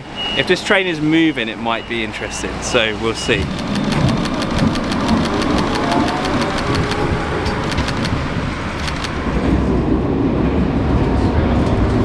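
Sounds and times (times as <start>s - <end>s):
tram rumbling: 0.0s - 12.0s
regular ticks: 3.2s - 9.2s.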